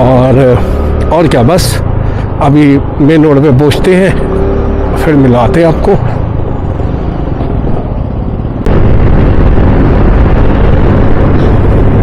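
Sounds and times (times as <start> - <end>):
road rumble: 0.0 - 12.0
wind buffeting microphone: 6.2 - 12.0.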